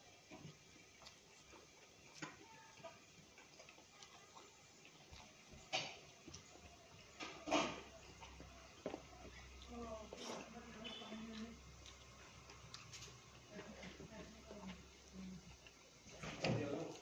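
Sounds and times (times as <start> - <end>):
chewing clicks and smacks: 0.3 - 7.4, 11.3 - 13.5.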